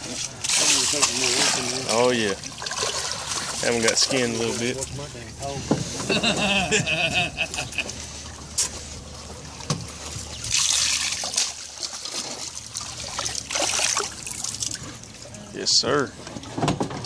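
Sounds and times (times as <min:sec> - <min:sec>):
rush of splashing water: 0:00.0 - 0:05.2, 0:07.8 - 0:15.5
water splashing and trickling: 0:00.0 - 0:06.6, 0:07.4 - 0:17.0.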